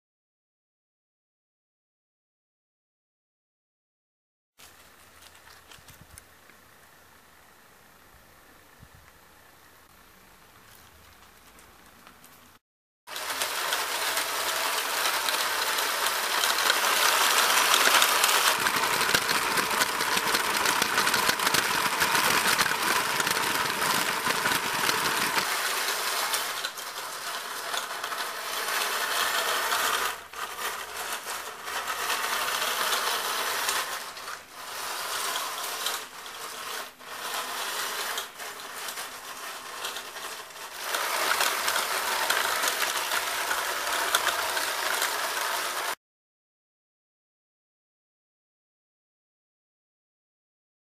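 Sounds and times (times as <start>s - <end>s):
electric motors whirring: 13.2s - 46.0s.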